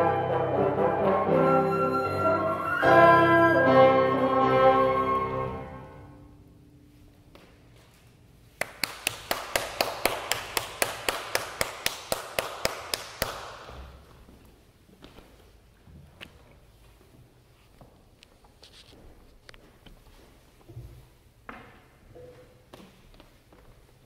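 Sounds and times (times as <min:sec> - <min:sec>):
held instrumental chord: 0:00.0 - 0:06.3.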